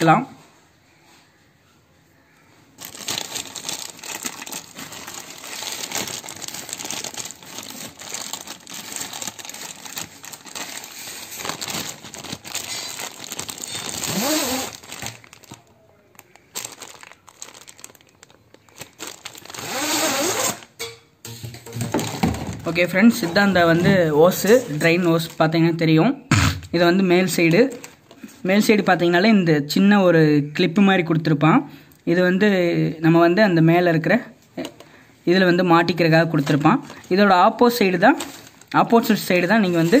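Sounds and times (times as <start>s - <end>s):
plastic packaging crinkling and tearing: 2.8s - 20.8s, 21.8s - 25.8s, 27.3s - 28.4s, 35.9s - 40.0s.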